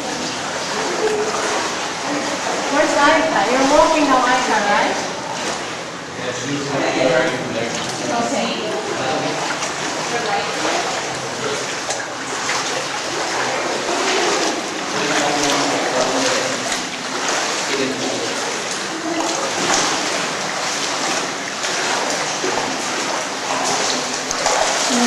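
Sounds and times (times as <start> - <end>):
people wading through water: 0.0 - 25.0
faint voices: 13.3 - 16.9.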